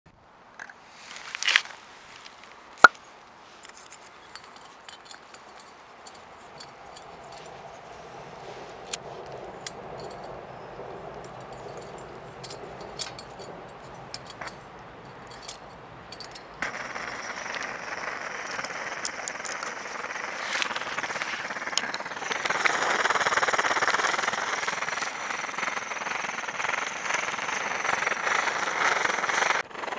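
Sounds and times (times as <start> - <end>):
small metallic clinks: 2.8 - 8.2, 8.9 - 22.4
soft flame: 7.0 - 13.7, 16.6 - 29.6
burner hissing: 16.2 - 29.6.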